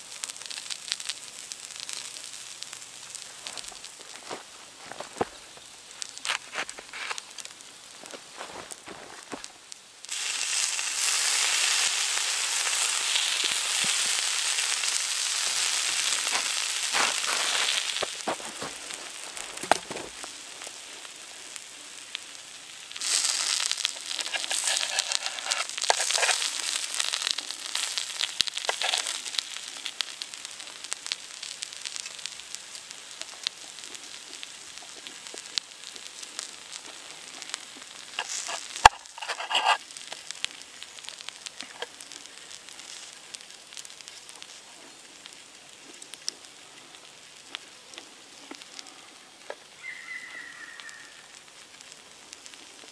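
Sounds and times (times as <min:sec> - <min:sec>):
vegetables sizzling on hot stone: 0:00.0 - 0:52.9
knife and fork scraping stone: 0:24.2 - 0:26.4, 0:38.2 - 0:39.8.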